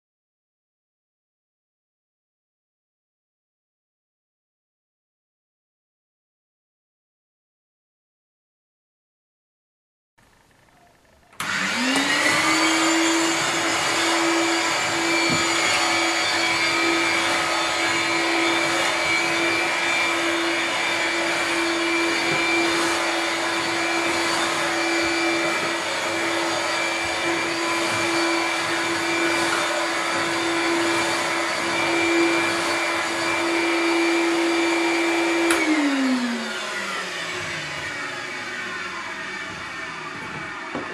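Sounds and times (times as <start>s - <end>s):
stick vacuum cleaner motor whining: 11.1s - 40.9s
vacuum cleaner switch click: 11.4s - 12.2s, 35.4s - 35.8s.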